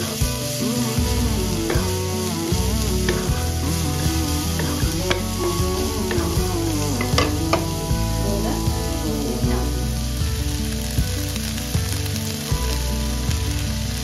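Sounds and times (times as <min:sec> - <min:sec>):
background music with melody: 0:00.0 - 0:14.0
onions sizzling in oil: 0:00.0 - 0:14.0.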